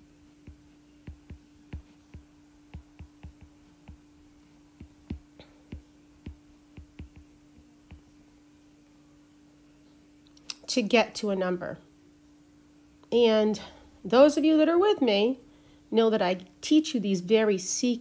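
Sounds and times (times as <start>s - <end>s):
faint steady hum: 0.0s - 18.0s
stylus taps on touchscreen: 0.5s - 4.0s, 4.8s - 8.1s.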